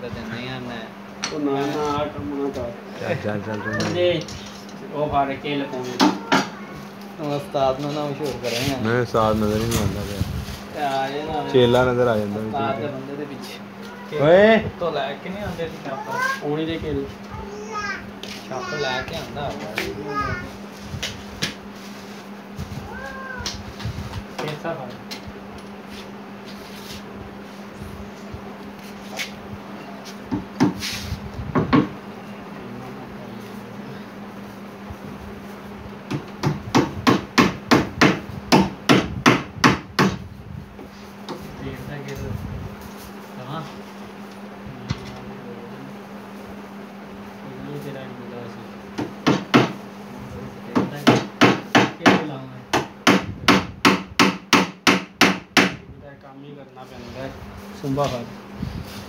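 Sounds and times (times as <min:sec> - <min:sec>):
steady low hum: 0:00.0 - 0:59.0
hammer striking wood: 0:30.3 - 0:30.8, 0:36.1 - 0:40.2, 0:49.0 - 0:49.8, 0:50.7 - 0:55.8
knocks on wooden cabinet: 0:31.5 - 0:32.0, 0:36.1 - 0:40.2, 0:49.0 - 0:49.8, 0:50.8 - 0:55.8.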